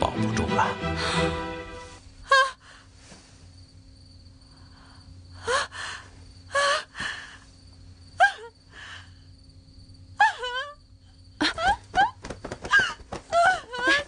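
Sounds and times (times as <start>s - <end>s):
woman sobbing wails: 10.2s - 10.8s, 11.4s - 14.0s.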